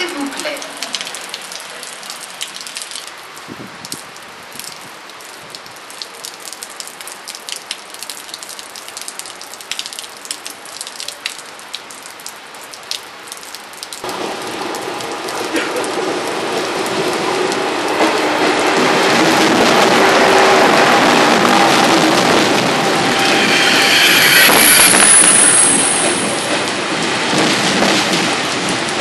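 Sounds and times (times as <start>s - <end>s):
rain falling: 0.0s - 29.0s
high-speed train passing: 14.0s - 29.0s.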